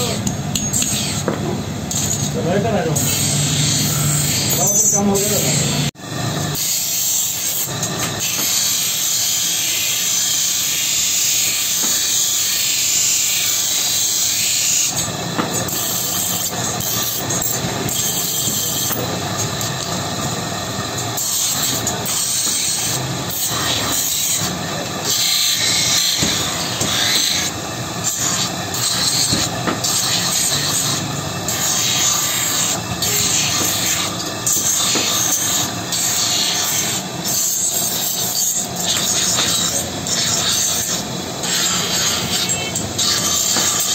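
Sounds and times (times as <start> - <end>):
grinding wheel grinding steel: 0.0 - 43.9.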